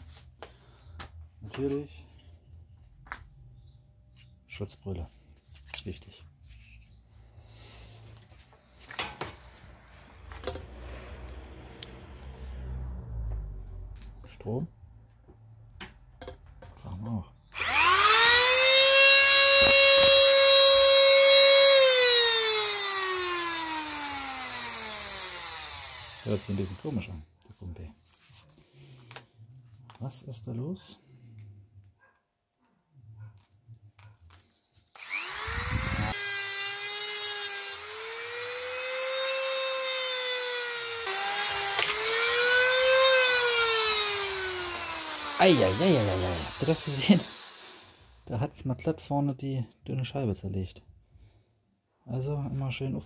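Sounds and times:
cut-off tool whining: 0:17.5 - 0:27.2, 0:34.9 - 0:48.2.

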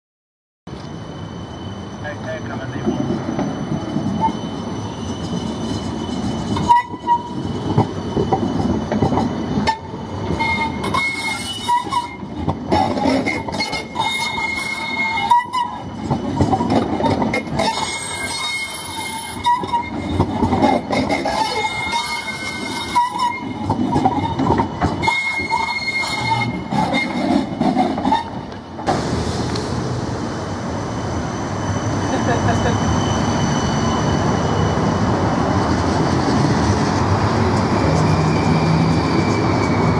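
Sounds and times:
tram wheels rumbling on rail: 0:00.7 - 0:39.9
wavering high-pitched tones: 0:00.8 - 0:12.4.

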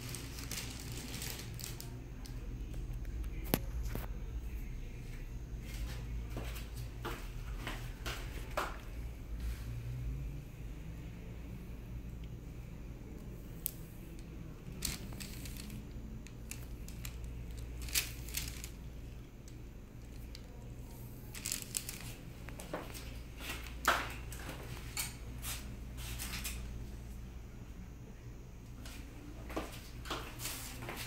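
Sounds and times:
rustles of handling: 0:00.0 - 0:02.4, 0:13.6 - 0:26.7, 0:28.8 - 0:31.0
low room hum: 0:00.0 - 0:31.0.

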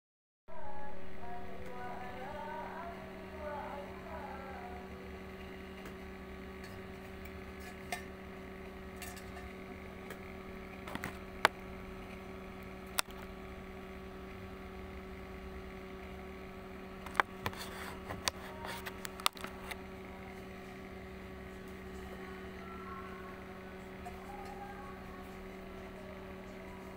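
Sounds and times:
electrical mains hum: 0:00.5 - 0:26.9
sharp clicks and taps: 0:12.9 - 0:13.3.

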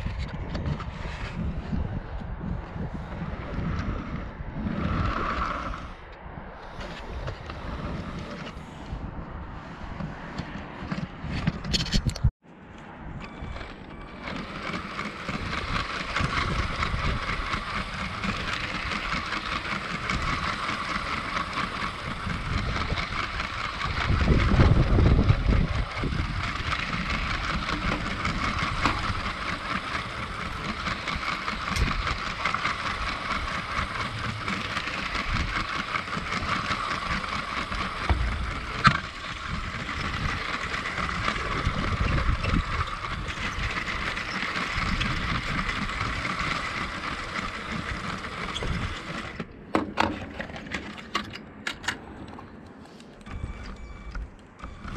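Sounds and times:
low rumbles: 0:00.0 - 0:49.7
wheels rattling over plastic track: 0:02.8 - 0:06.0, 0:06.7 - 0:08.7, 0:13.1 - 0:51.9, 0:53.3 - 0:54.9
toy train motor whining: 0:13.2 - 0:49.5, 0:53.3 - 0:54.9.

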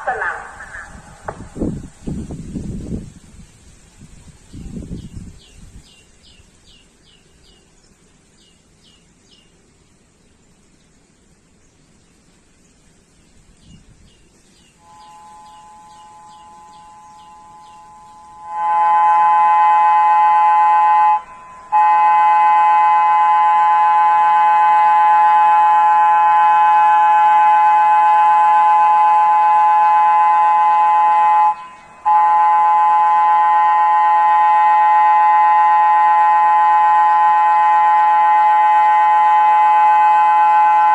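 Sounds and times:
warning siren steady tone: 0:14.8 - 0:40.9.

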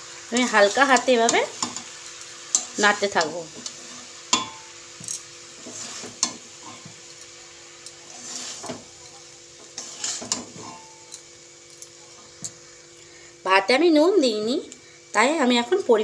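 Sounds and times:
faint sizzle of frying: 0:00.0 - 0:16.0
spatula scraping a steel wok: 0:02.5 - 0:04.6, 0:05.5 - 0:07.0, 0:08.0 - 0:11.0.

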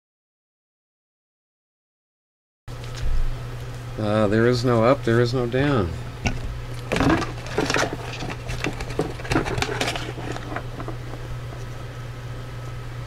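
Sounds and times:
steady low hum: 0:02.7 - 0:13.0
cardboard rustling and scraping: 0:06.3 - 0:11.8.

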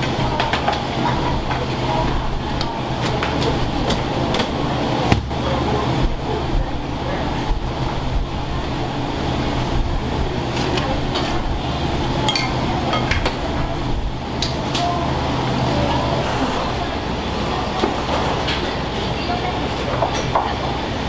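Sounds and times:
steady low hum: 0:00.0 - 0:19.8
murmur of voices: 0:00.0 - 0:21.0
dishes and utensils clinking: 0:12.2 - 0:13.4.

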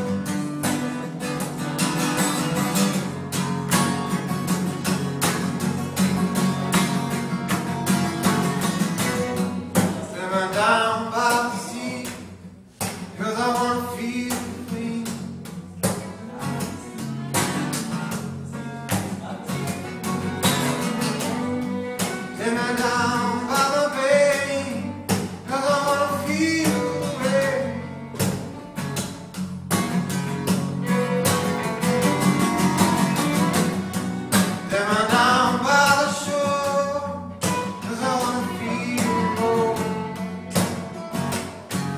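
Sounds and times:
acoustic guitars strummed: 0:00.0 - 0:41.9
man singing: 0:09.8 - 0:12.4, 0:13.1 - 0:17.2, 0:22.2 - 0:28.1, 0:34.6 - 0:40.5
fiddle sliding melody: 0:20.9 - 0:23.5, 0:36.8 - 0:41.2.

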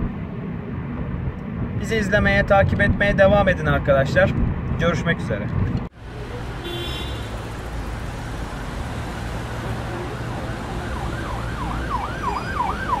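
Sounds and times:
road traffic rumble: 0:00.0 - 0:13.0
emergency siren wailing: 0:09.6 - 0:13.0.

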